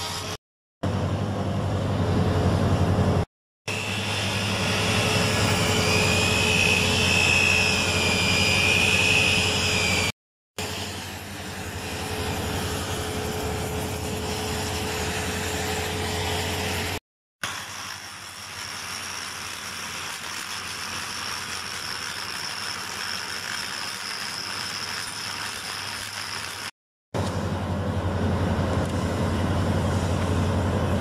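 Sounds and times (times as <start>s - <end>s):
angle grinder grinding steel: 3.7s - 16.8s, 17.4s - 26.7s
cutting torch flame: 3.7s - 27.4s.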